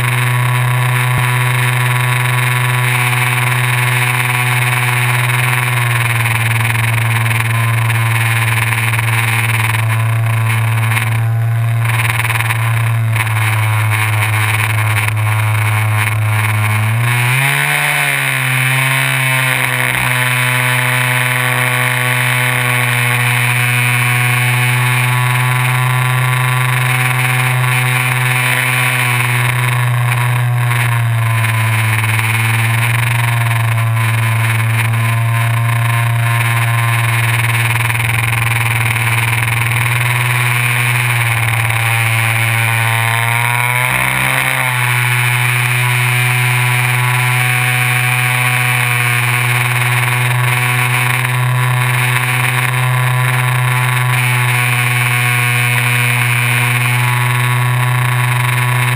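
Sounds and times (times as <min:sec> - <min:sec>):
electric motor and propeller whining: 0:00.0 - 0:58.9.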